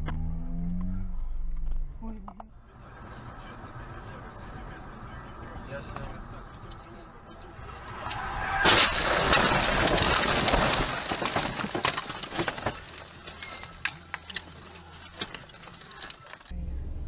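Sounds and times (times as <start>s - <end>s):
branches scraping against a car: 7.7s - 16.5s.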